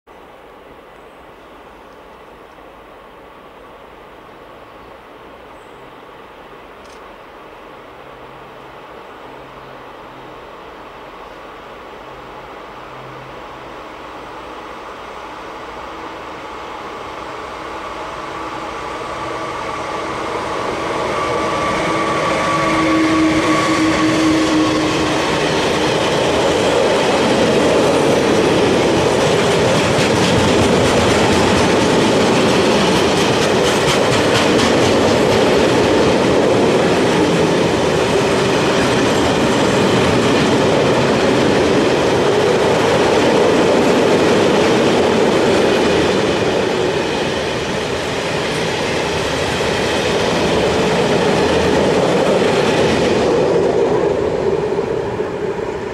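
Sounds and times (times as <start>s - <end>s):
electric locomotive passing: 0.2s - 55.9s
train wheels clattering over rail joints: 23.5s - 42.5s.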